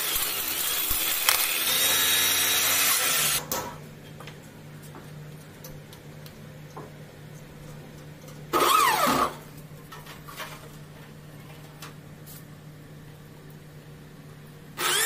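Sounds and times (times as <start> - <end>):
cordless drill whine: 0.0 - 3.4, 8.6 - 9.4, 14.8 - 15.0.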